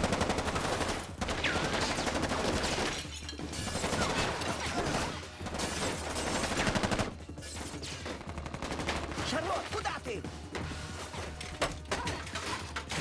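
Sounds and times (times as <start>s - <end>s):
rapid automatic gunfire: 0.0s - 2.9s, 3.7s - 7.2s, 7.8s - 9.6s.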